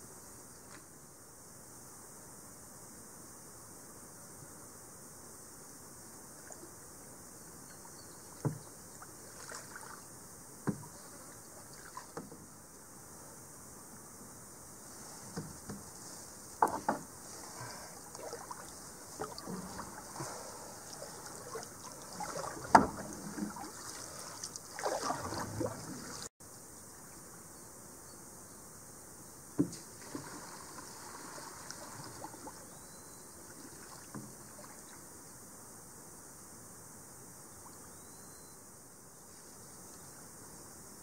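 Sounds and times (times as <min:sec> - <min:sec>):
paddle splashing in water: 0:08.3 - 0:12.4, 0:15.2 - 0:26.3, 0:29.6 - 0:32.8, 0:33.4 - 0:35.0.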